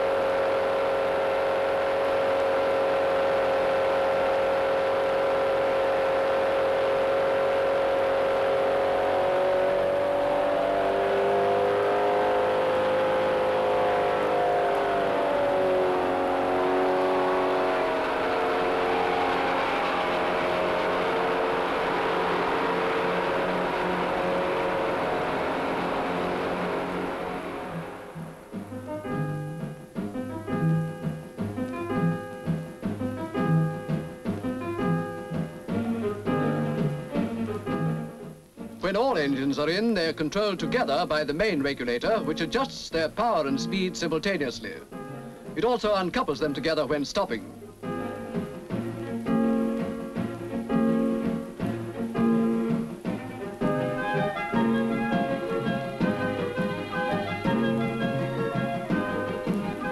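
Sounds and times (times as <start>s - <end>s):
diesel locomotive engines droning: 0.0s - 31.0s, 53.5s - 59.9s.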